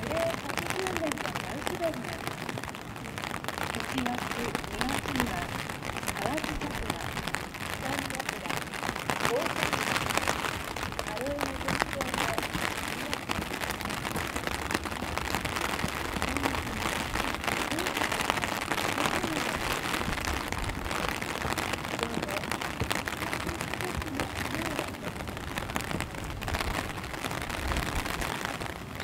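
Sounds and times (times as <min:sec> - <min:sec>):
hiss of rain: 0:00.0 - 0:29.0
rain pattering on umbrella: 0:00.0 - 0:29.0.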